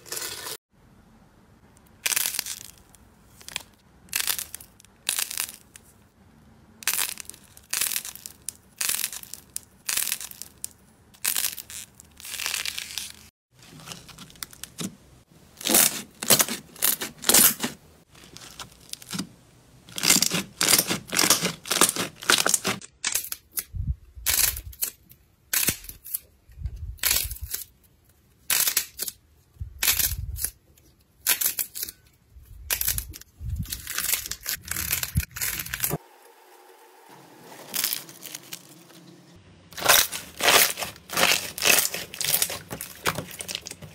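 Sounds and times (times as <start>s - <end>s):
slime squishing and crackling: 15.6s - 19.3s, 19.9s - 23.5s, 32.6s - 36.0s, 39.7s - 43.9s.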